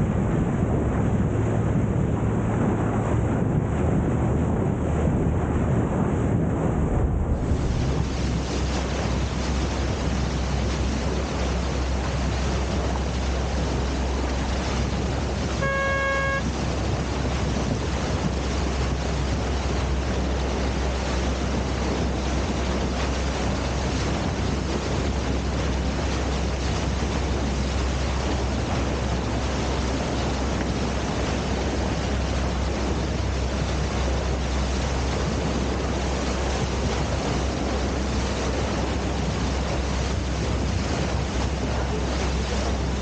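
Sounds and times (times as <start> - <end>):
wind rushing over microphone: 0.0 - 43.0
short horn-like beep: 15.6 - 16.5.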